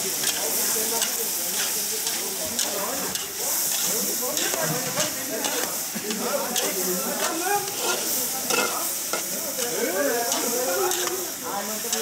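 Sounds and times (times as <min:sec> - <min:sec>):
squid sizzling in a wok: 0:00.0 - 0:12.0
metal ladle scraping a wok: 0:01.0 - 0:05.8, 0:06.6 - 0:09.3.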